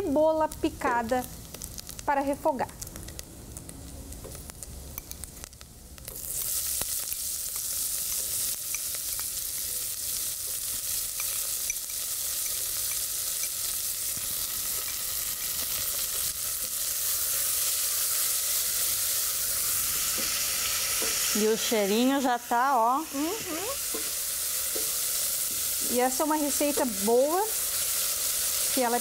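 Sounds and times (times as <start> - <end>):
oil popping and crackling: 0.5 - 21.4.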